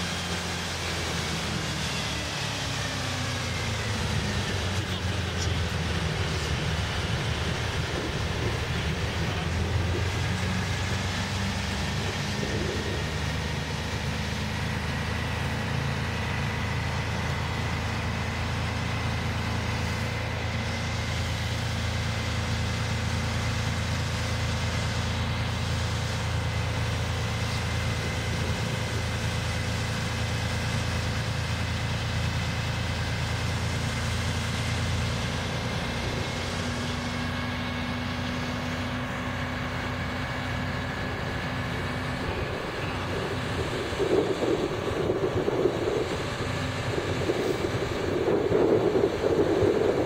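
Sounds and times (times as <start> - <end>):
engine humming: 0.0 - 50.0
wind on microphone: 6.3 - 13.6, 41.0 - 50.0.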